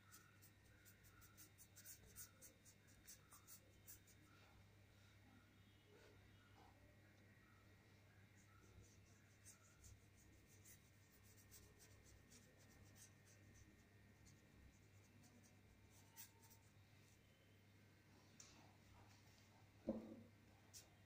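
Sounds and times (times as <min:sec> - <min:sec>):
paintbrush strokes: 0:00.0 - 0:04.6, 0:08.3 - 0:17.2
low steady hum: 0:00.0 - 0:21.0.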